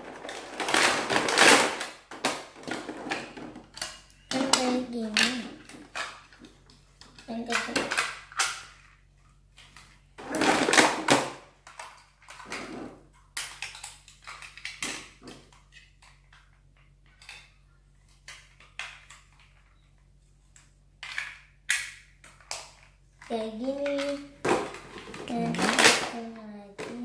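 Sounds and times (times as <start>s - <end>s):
plastic rustling: 0.0s - 3.8s
plastic toy parts clicking: 13.2s - 17.5s, 21.0s - 22.9s.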